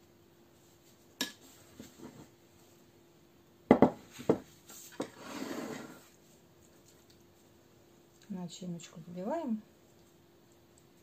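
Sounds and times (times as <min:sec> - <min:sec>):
sharp knocks on table: 0:03.7 - 0:04.4
short scrape: 0:04.7 - 0:06.1.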